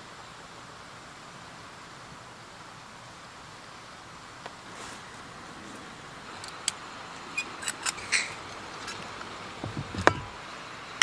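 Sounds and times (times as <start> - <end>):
faint steady hiss: 0.0 - 11.0
soft knock: 9.6 - 10.4.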